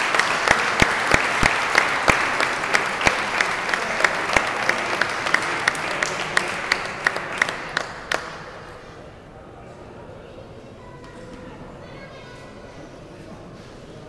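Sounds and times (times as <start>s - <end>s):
audience applauding: 0.0s - 8.7s
close sharp claps: 0.0s - 8.8s.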